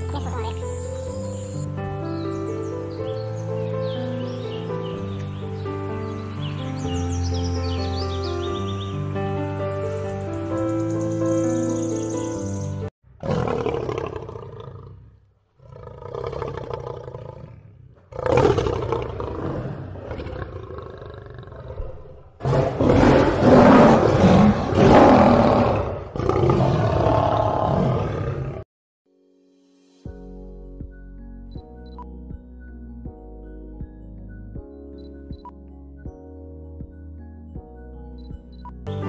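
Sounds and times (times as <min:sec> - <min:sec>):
lion roaring and growling: 0:13.2 - 0:28.7.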